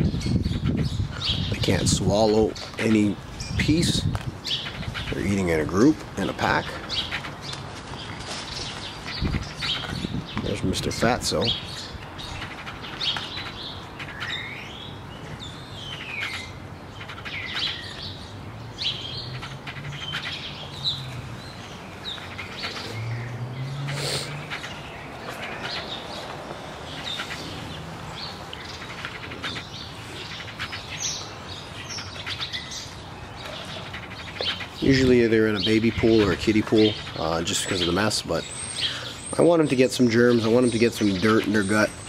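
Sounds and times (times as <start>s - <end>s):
small birds chirping: 0.0s - 42.0s.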